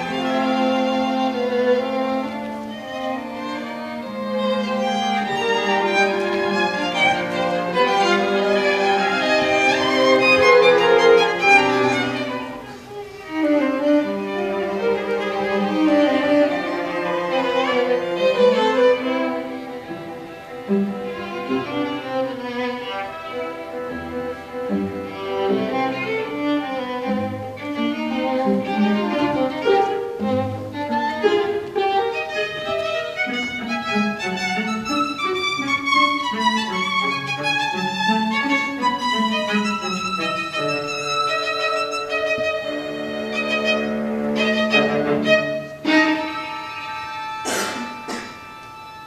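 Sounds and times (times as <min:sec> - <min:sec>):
string quartet playing: 0:00.0 - 0:49.0.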